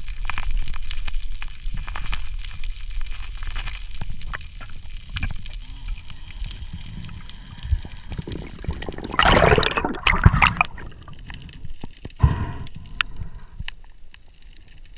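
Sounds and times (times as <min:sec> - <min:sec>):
water bubbling underwater: 0:05.6 - 0:13.6.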